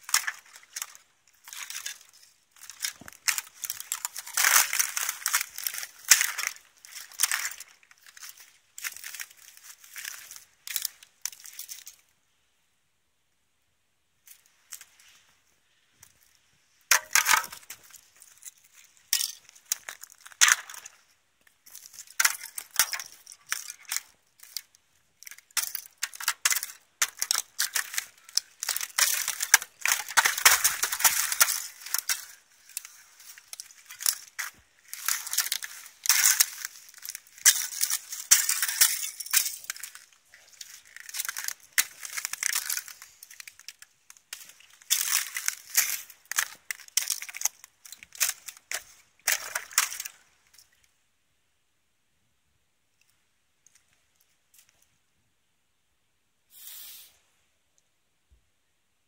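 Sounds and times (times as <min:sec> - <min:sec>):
thin ice cracking underfoot: 0:00.0 - 0:12.0, 0:16.0 - 0:50.8.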